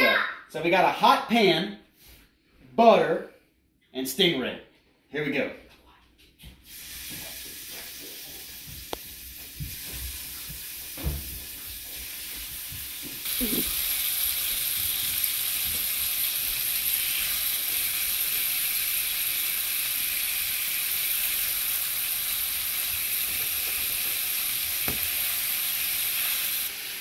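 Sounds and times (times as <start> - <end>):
fish sizzling in a pan: 6.6 - 27.0.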